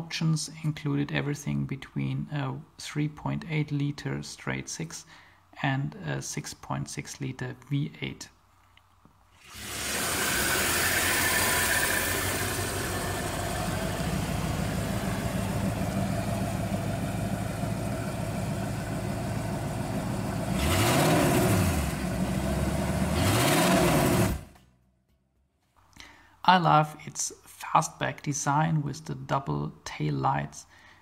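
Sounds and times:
car engine idling and revving: 9.6 - 24.6.

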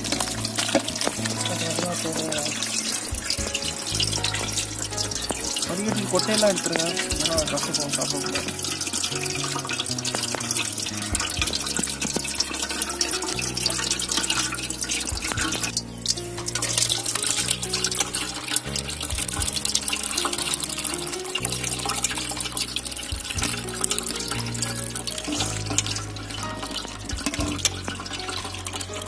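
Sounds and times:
background music: 0.0 - 29.0
juice splashing into metal pot: 0.0 - 29.0.

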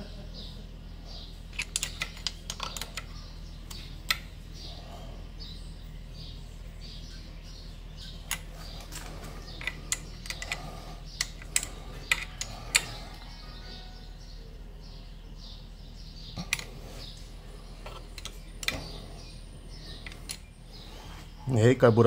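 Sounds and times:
steady low hum: 0.0 - 22.0
small metallic clicks of tools: 8.3 - 13.1.

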